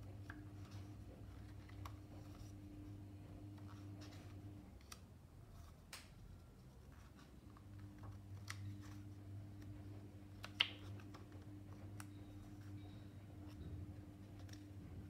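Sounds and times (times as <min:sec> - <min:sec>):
faint steady hum: 0:00.0 - 0:15.0
paper pages turning: 0:00.2 - 0:15.0
paper snap: 0:10.4 - 0:11.2.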